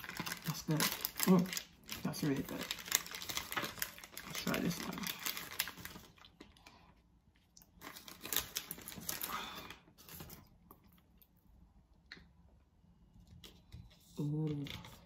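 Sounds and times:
wrapper rustling and tearing: 0.0s - 6.8s, 7.6s - 10.6s.

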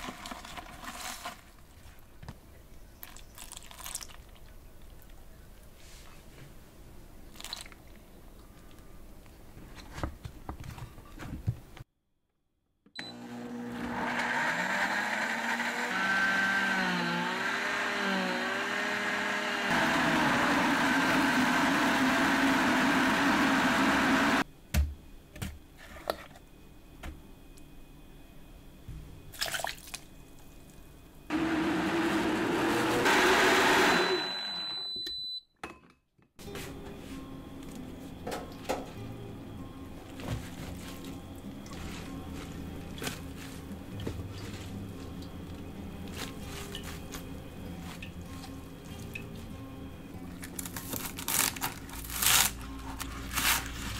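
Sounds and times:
blender motor running: 13.0s - 24.4s, 31.3s - 34.7s.

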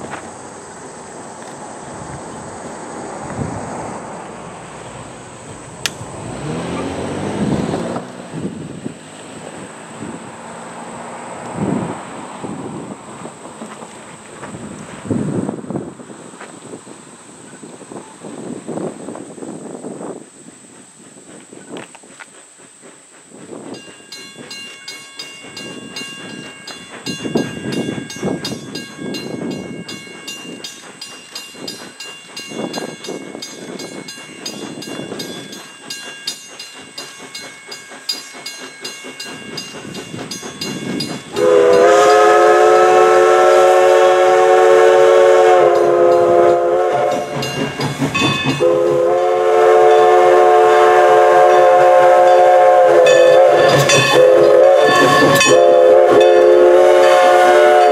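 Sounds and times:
steam locomotive exhaust beat: 0.0s - 57.9s
steam whistle blasts: 41.3s - 47.5s, 48.5s - 57.9s.

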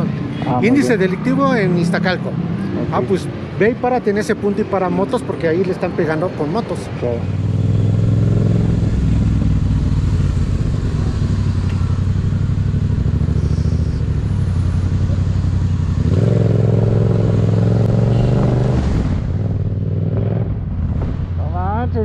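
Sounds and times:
muffled street sound: 0.0s - 22.0s
motorcycle engine running: 7.3s - 18.5s.

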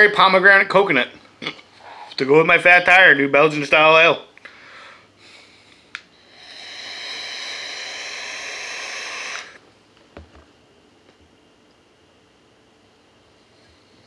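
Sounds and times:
vape coil hissing and sizzling: 6.2s - 9.6s.

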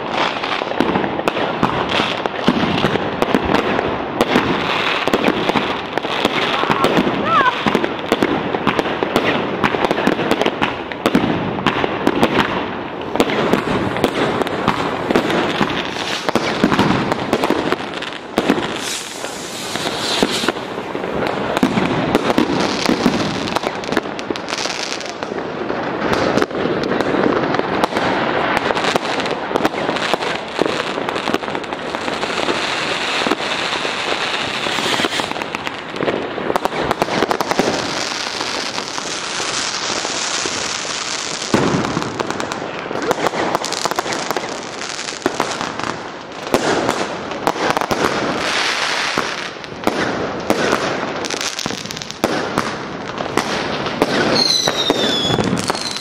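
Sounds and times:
firecrackers banging and crackling: 0.0s - 56.0s
aerial firework shells bursting: 0.7s - 25.2s, 33.2s - 45.9s.

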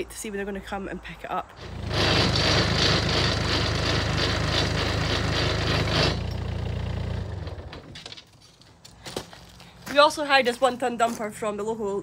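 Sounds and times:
small diesel engine running: 1.6s - 8.0s.

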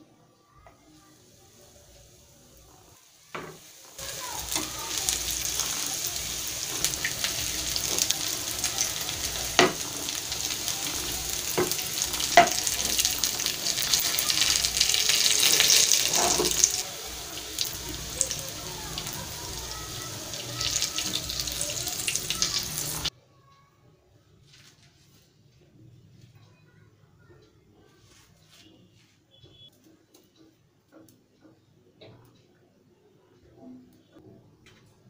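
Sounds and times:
food sizzling in oil: 0.8s - 23.1s.

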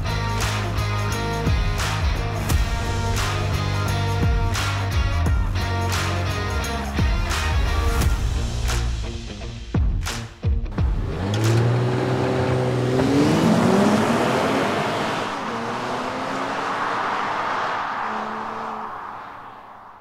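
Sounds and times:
car engine accelerating: 10.7s - 20.0s.

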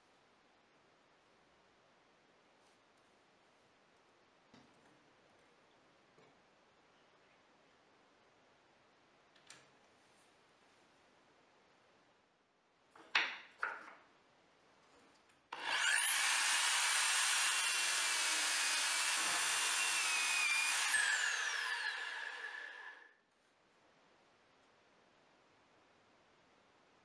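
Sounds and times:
electric drill whining: 15.6s - 23.0s.

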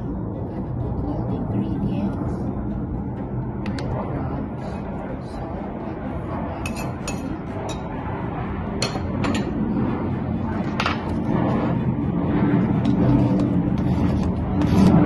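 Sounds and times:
metal spoon clinking ceramic bowl: 6.7s - 7.8s.

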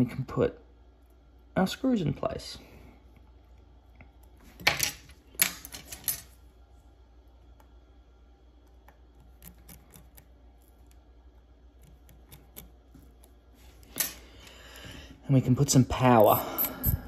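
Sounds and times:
tweezers clicking on tiny screws: 11.8s - 12.8s.

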